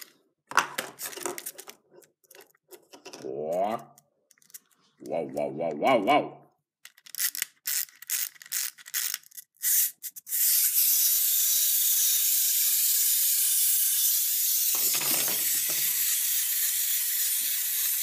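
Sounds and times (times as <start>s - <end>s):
toy winding clicks: 6.8s - 18.0s
clockwork toy whirring: 6.9s - 18.0s.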